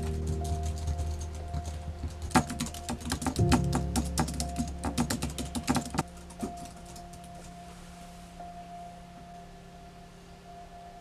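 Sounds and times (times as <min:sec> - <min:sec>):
rapid keyboard typing: 0:00.0 - 0:07.5
sustained musical drone: 0:00.0 - 0:11.0.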